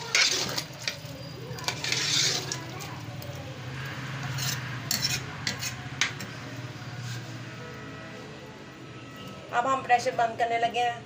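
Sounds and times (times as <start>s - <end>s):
ladle stirring curry: 0.0s - 7.6s.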